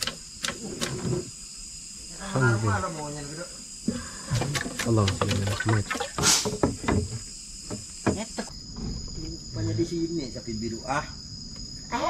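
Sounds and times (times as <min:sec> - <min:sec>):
night insects ringing: 0:00.0 - 0:12.0
knock: 0:06.4 - 0:08.3.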